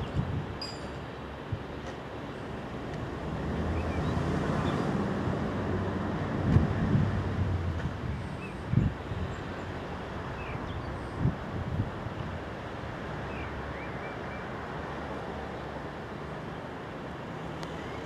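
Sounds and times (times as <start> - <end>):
wind thumps on microphone: 0.0 - 0.6, 6.2 - 9.0.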